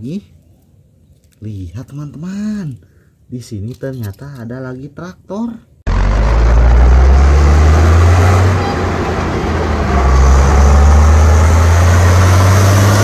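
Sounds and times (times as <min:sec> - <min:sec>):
tractor engine rumbling: 0:05.9 - 0:13.0.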